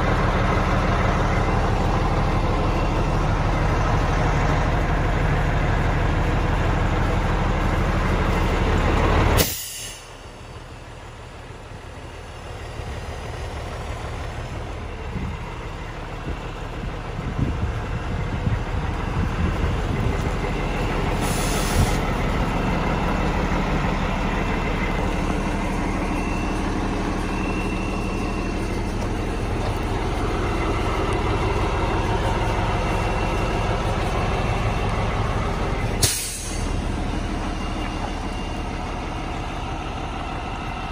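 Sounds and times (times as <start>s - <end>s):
diesel truck engine idling: 0.0s - 40.9s
air hiss: 9.4s - 10.2s, 21.2s - 22.0s, 36.0s - 36.7s.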